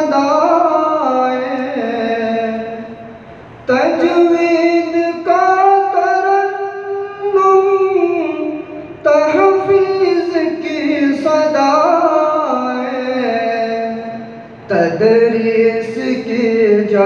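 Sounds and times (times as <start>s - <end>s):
person singing devotional song: 3.7s - 17.0s.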